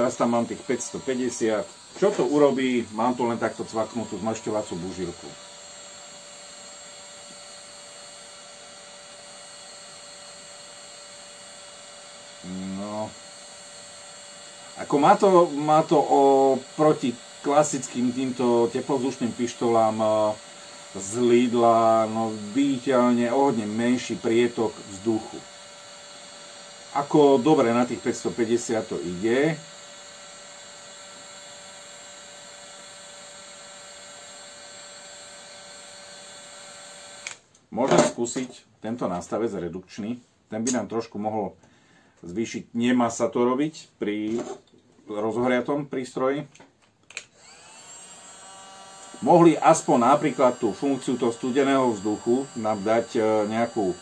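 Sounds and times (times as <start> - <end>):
heat gun fan whine: 0.0 - 38.1, 47.1 - 54.0.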